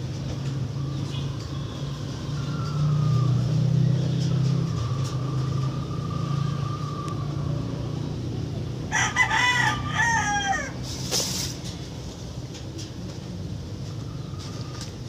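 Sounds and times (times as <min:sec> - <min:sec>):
rooster crowing: 0:02.2 - 0:03.5, 0:08.8 - 0:10.9.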